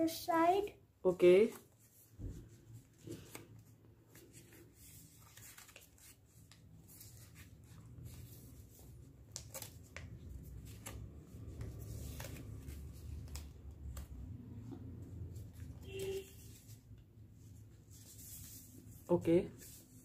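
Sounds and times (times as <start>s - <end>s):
paper rustling and crinkling: 1.4s - 14.3s.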